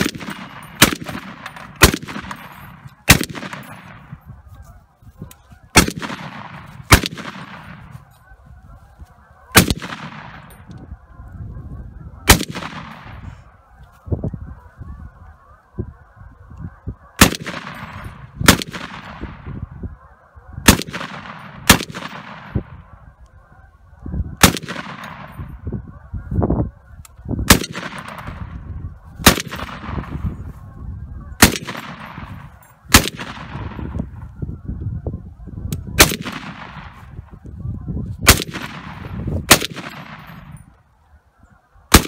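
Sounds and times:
gunshot echo: 0.0 - 4.2, 5.7 - 7.9, 9.5 - 10.6, 12.3 - 13.3, 17.2 - 19.5, 20.6 - 22.8, 24.4 - 25.6, 27.5 - 28.6, 29.2 - 30.3, 31.4 - 34.0, 36.0 - 37.1, 38.2 - 40.5
machine gun single shots: 39.5 - 40.3.

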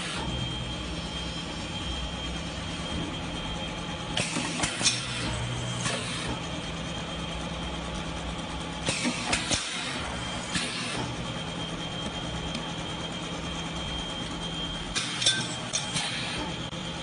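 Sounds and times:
machine hum: 0.0 - 17.0
metal clanks of punch strokes: 14.9 - 16.3.

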